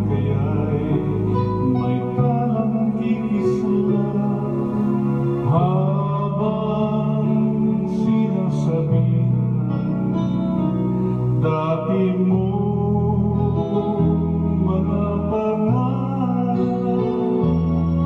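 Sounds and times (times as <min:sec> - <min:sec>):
guitar and keyboard backing track: 0:00.0 - 0:18.0
man singing a slow ballad: 0:00.0 - 0:18.0.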